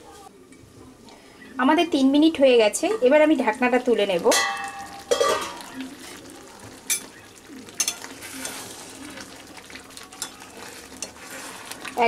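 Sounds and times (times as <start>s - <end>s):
faint sizzle: 0.0s - 12.0s
spatula stirring thick curry: 5.8s - 12.0s.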